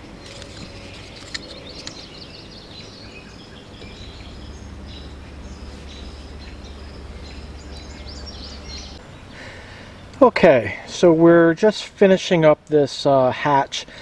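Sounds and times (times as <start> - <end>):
birds chirping and singing: 0.0 - 11.1
low steady hum: 0.0 - 13.2.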